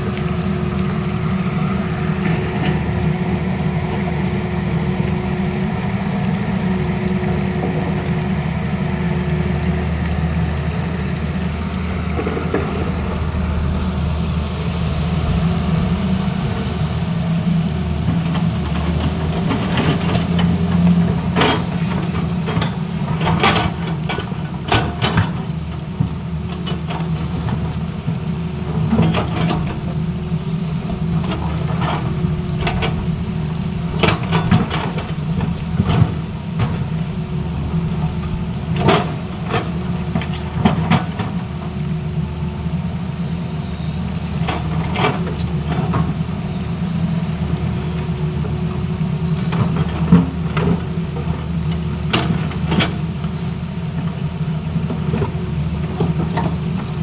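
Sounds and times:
excavator diesel engine running: 0.0 - 57.0.

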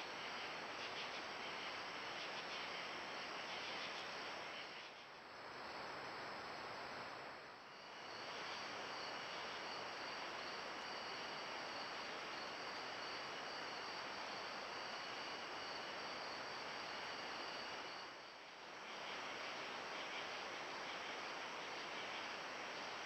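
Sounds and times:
microphone hiss: 0.0 - 23.0
crickets trilling: 5.4 - 23.0.

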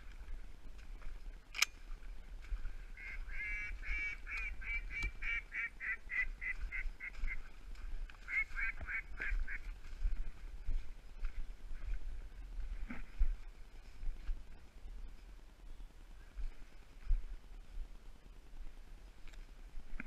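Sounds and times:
sharp click: 1.5 - 1.8
duck quacking: 3.0 - 7.5, 8.2 - 9.7.

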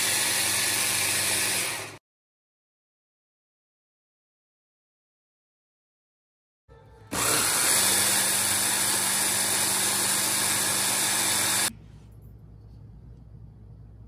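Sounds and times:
electric chopper grinding cookies: 0.0 - 2.0, 7.1 - 11.7.

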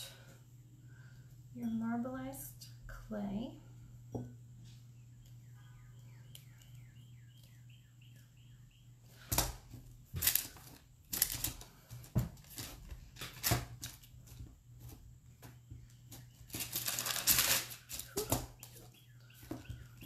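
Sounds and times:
paper rustling on tabletop: 16.4 - 18.4.

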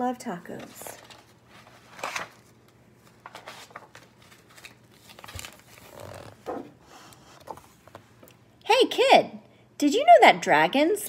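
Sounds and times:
book pages rustling: 0.5 - 8.3.

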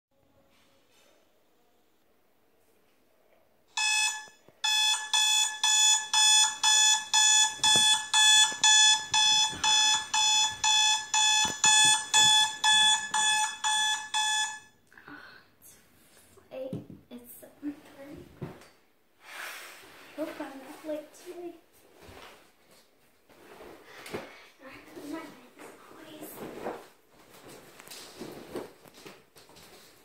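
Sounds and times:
smartphone alarm beeping: 3.8 - 14.8
bedding rustling: 19.9 - 30.0.

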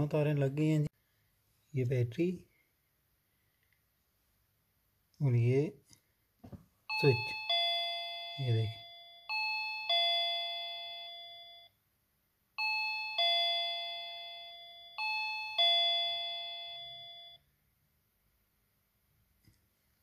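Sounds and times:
two-note doorbell chime: 6.9 - 11.8, 12.6 - 17.4.

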